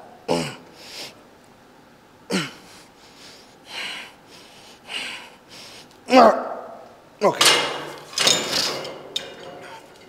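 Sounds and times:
man grunting: 0.3 - 0.7, 2.3 - 2.6, 6.1 - 6.6.

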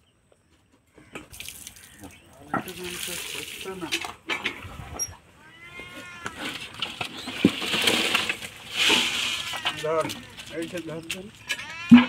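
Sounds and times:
wavering animal call: 4.9 - 6.6, 11.4 - 12.0.

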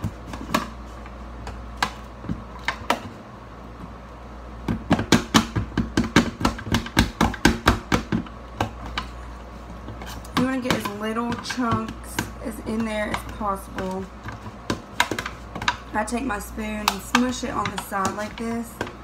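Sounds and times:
spoon mashing avocado: 4.7 - 19.0.

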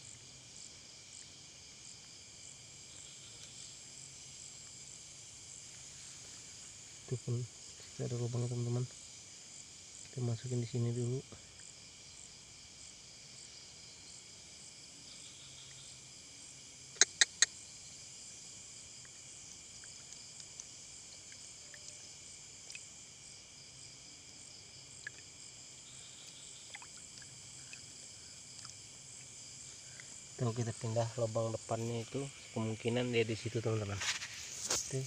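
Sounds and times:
crickets trilling: 0.0 - 35.0.

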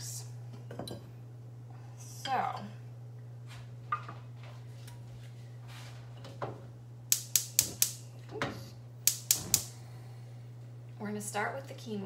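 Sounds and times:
steady low hum: 0.0 - 12.0
stove igniter clicking: 7.1 - 8.0, 9.0 - 9.8.

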